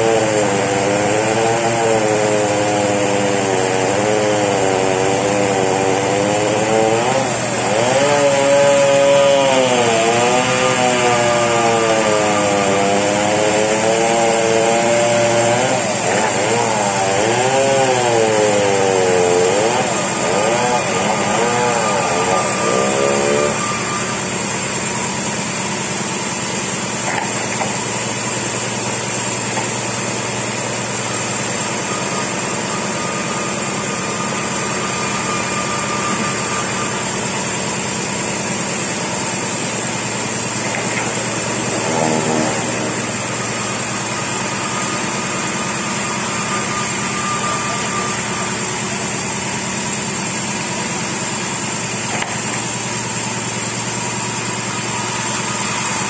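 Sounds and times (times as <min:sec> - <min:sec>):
chainsaw engine running: 0:00.0 - 0:56.0
steady high hiss: 0:18.8 - 0:56.0.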